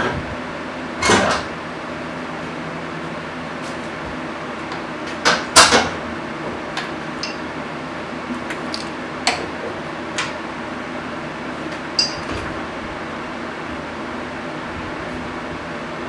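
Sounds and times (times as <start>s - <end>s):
steady background hum: 0.0s - 16.0s
metal tools clinking: 7.2s - 7.4s, 12.0s - 12.3s.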